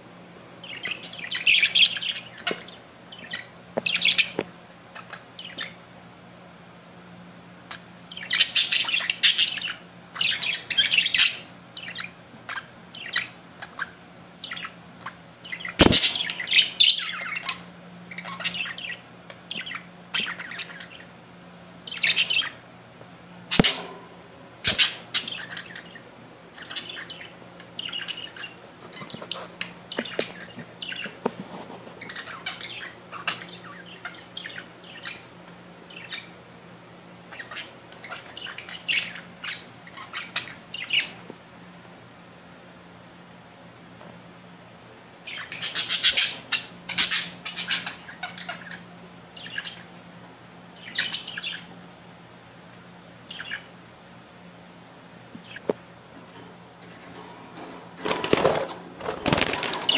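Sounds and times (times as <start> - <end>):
faint low hum: 0.0 - 59.9
budgerigars chattering: 45.3 - 49.9, 53.3 - 53.7.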